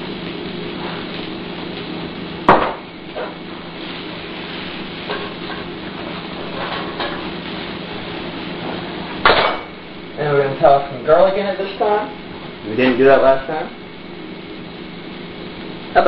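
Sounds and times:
meat sizzling in skillet: 0:00.0 - 0:10.2
low steady hum: 0:00.0 - 0:16.0.

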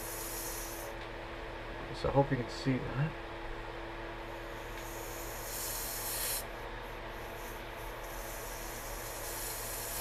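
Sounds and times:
pressurised gas hissing from valve: 0:00.0 - 0:01.0, 0:04.6 - 0:06.5, 0:07.1 - 0:10.0.

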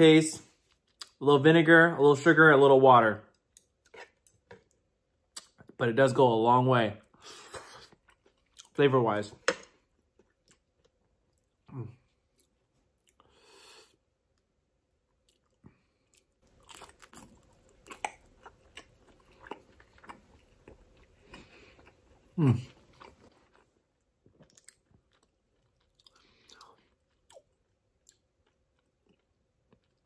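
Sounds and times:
close chewing: 0:15.2 - 0:30.0.

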